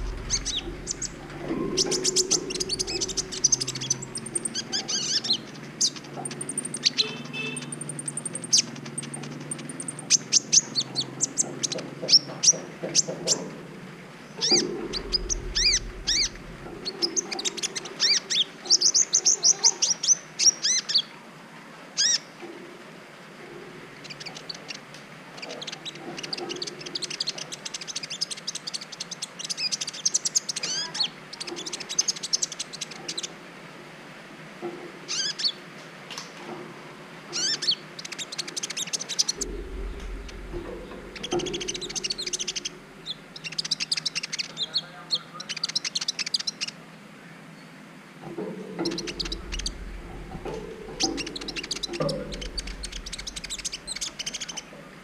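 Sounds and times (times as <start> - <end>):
sunbird chirps and trills: 0.0 - 13.4, 14.2 - 21.1, 37.4 - 46.8, 48.4 - 54.8.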